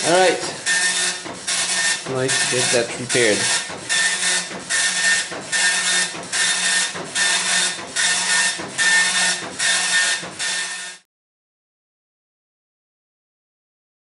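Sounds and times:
printer rasping mechanical bursts: 0.0 - 11.0.

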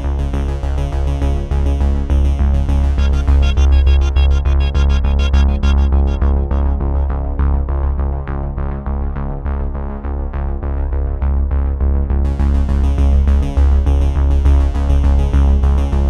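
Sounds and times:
electronic synthesizer music: 2.8 - 8.0
bright high-pitched rhythmic layer: 3.0 - 7.3.

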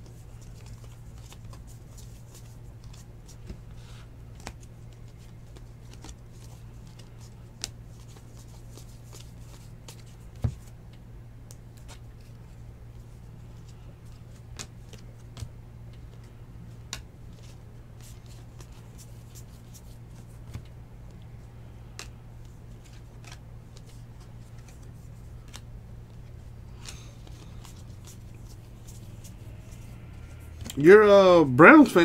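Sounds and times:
steady low hum: 0.0 - 32.0
cards flicking and clicking: 4.2 - 12.5, 13.6 - 30.8.

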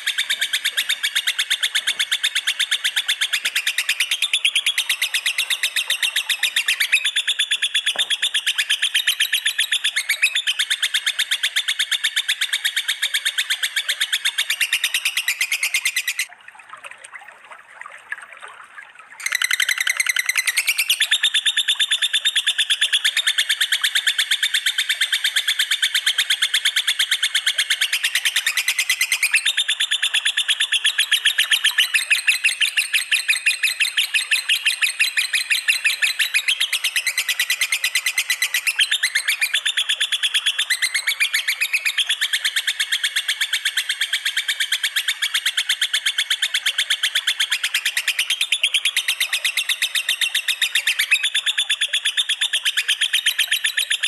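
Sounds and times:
songbirds trilling chatter: 0.0 - 16.3, 19.2 - 23.9.

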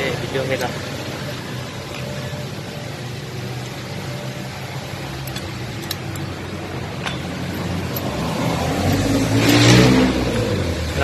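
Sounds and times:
wrench clinking on metal: 5.1 - 6.4, 7.0 - 9.8.

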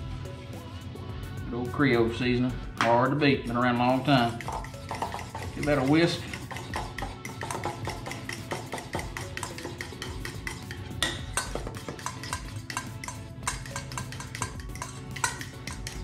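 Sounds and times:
whisk scraping metal bowl: 3.5 - 16.0.

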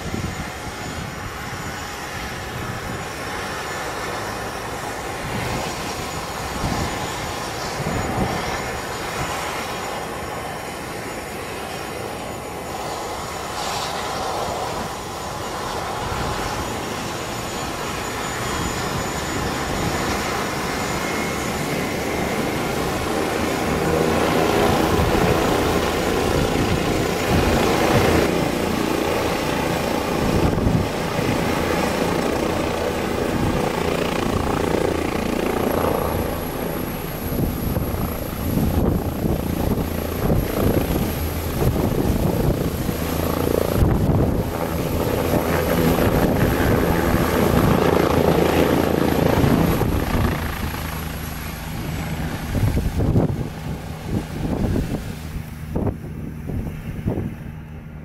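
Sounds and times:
helicopter rotor and turbine: 0.0 - 58.0
high turbine whine: 0.0 - 58.0.

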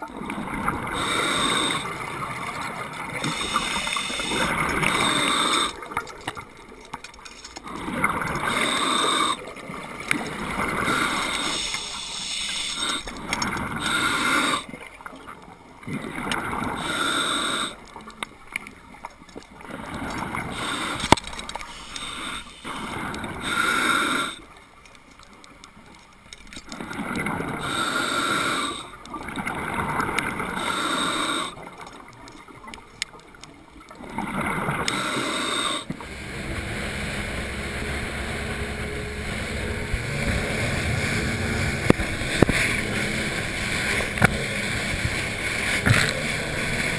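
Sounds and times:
bubbling and hissing: 0.0 - 6.7, 7.4 - 14.9, 15.9 - 17.9, 19.6 - 24.6, 26.7 - 32.1, 34.0 - 46.9
water splashing against camera: 0.0 - 17.0, 31.5 - 46.9
outboard motor boat engine: 0.0 - 18.2, 19.5 - 24.8, 34.0 - 46.9
rushing water: 0.0 - 46.9
diver breathing underwater: 0.6 - 6.0, 7.6 - 14.8, 16.4 - 17.9, 19.7 - 24.5, 27.1 - 29.0, 29.7 - 31.8, 34.1 - 46.9.

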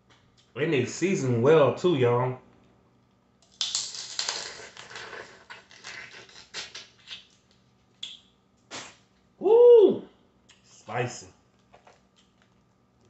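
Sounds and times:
shells cracking: 3.4 - 4.6
mouth sounds: 8.7 - 11.1.

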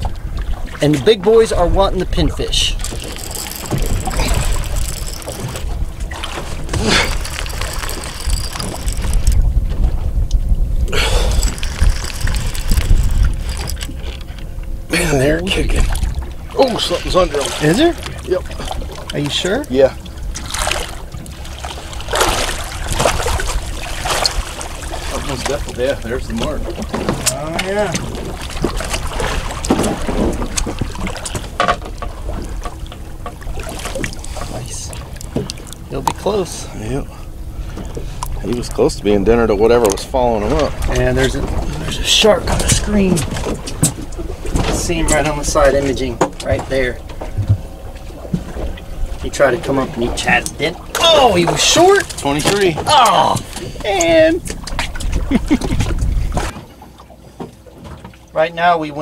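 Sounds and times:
wind buffeting microphone: 0.0 - 35.9, 53.4 - 56.6
water lapping against boat hull: 0.0 - 59.0
wind on microphone: 1.6 - 14.9, 54.4 - 56.5
fish thrashing at surface: 2.7 - 9.5, 10.9 - 14.4.

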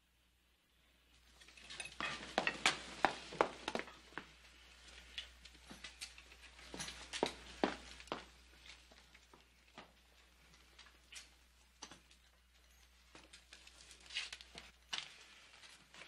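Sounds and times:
dishes and cutlery clattering: 1.4 - 3.0.

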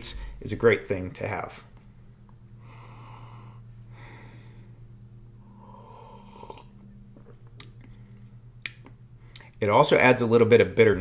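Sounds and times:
low electrical hum: 0.0 - 11.0
person swallowing and exhaling: 5.5 - 8.3.

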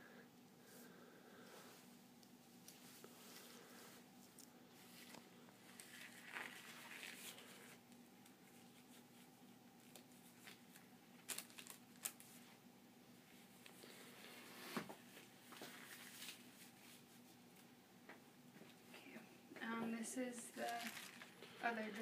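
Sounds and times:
low room hum: 0.0 - 22.0
rubbery glove rustling: 2.6 - 12.6, 13.5 - 17.4, 20.4 - 22.0
paper wrapper crinkling: 4.8 - 9.2, 9.8 - 12.5, 15.5 - 16.8, 20.4 - 22.0.

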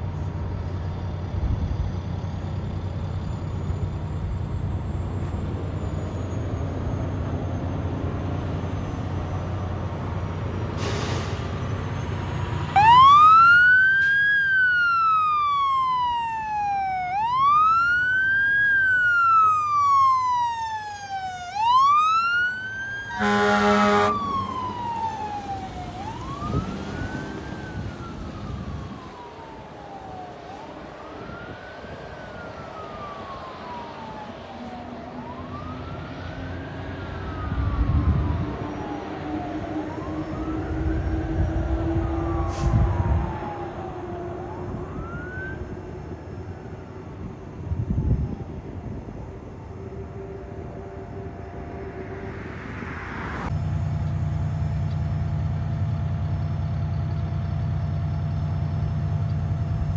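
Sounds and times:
wail siren rising and falling: 3.2 - 53.9
short horn blast: 23.1 - 24.3, 42.4 - 42.9.

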